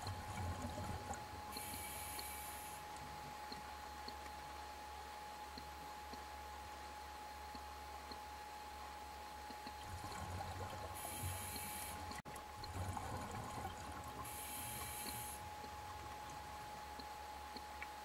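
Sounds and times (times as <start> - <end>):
exhaled air bubbling: 0.0 - 3.3, 9.5 - 18.0
regulator breath hiss: 1.6 - 2.8, 11.0 - 12.0, 14.3 - 15.4.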